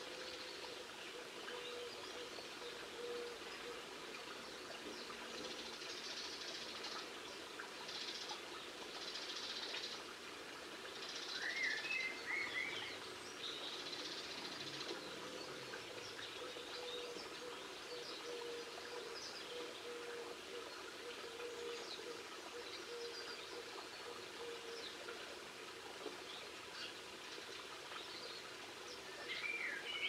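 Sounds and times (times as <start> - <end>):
songbirds twittering: 26.1 - 30.0.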